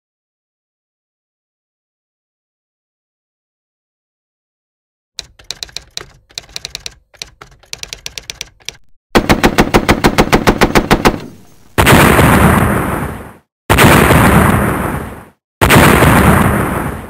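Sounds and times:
typewriter key clicks: 5.2 - 8.9
automatic gunfire: 9.1 - 12.2
loud explosion: 11.8 - 17.0.

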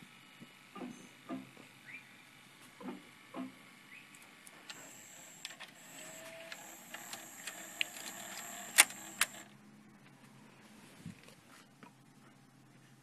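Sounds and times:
tape transport high whine: 2.1 - 9.6.

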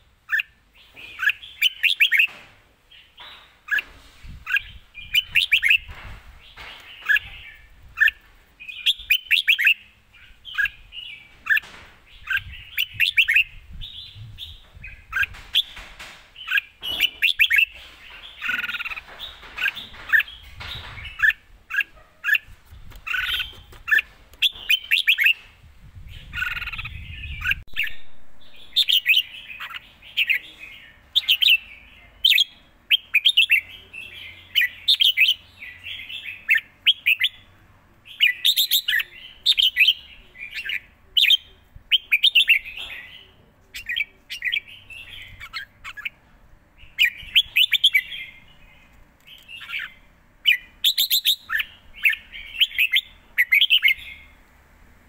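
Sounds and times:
bird singing whistled phrases: 1.2 - 2.3, 8.0 - 9.9.

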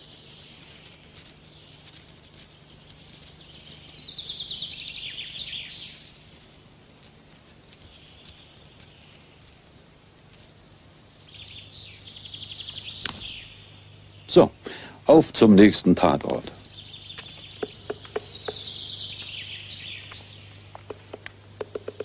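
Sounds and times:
steady low hum: 0.0 - 22.0
songbird trilling: 2.7 - 6.2, 10.9 - 14.4, 16.3 - 22.0.

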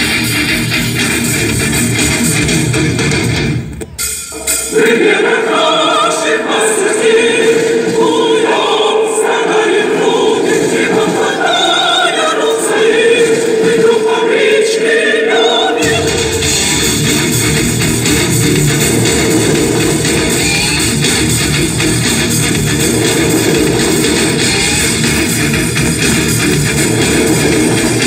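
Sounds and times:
band music with bass and guitar: 0.0 - 4.7, 15.9 - 28.0
choir singing: 4.3 - 28.0.

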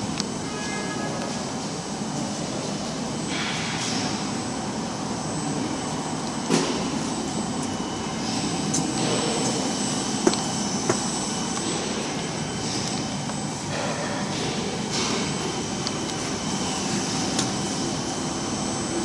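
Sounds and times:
machinery hum and whine: 0.0 - 19.0.

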